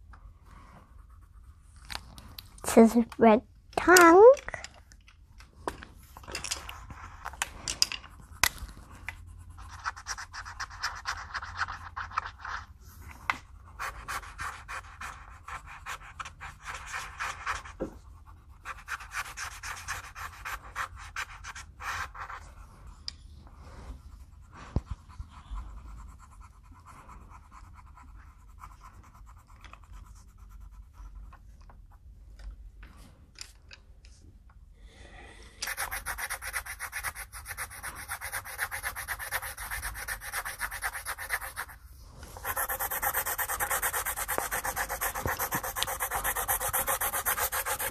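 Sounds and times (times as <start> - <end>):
pencil scratching on paper: 0.9 - 1.8, 8.1 - 12.7, 13.4 - 23.0, 24.0 - 31.4, 35.6 - 47.9.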